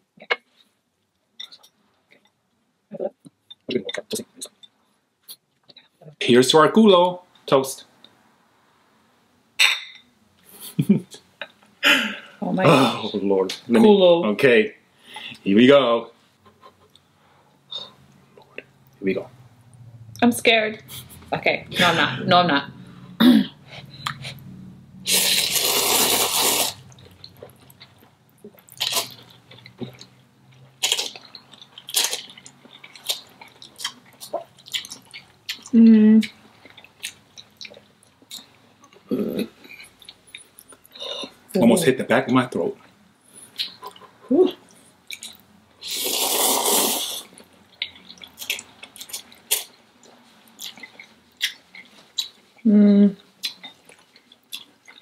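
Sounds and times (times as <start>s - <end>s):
noodle slurping: 25.0s - 27.0s, 45.8s - 47.4s
wet chewing: 25.1s - 41.0s, 43.5s - 52.4s, 53.4s - 55.0s.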